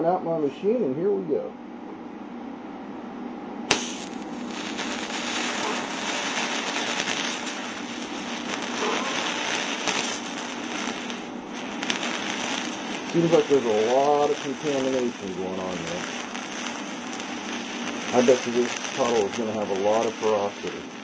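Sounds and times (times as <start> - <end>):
welder talking: 0.0 - 1.6, 12.7 - 16.4, 17.8 - 21.0
arc striking crack: 3.7 - 21.0
welding arc crackling hiss: 3.7 - 21.0.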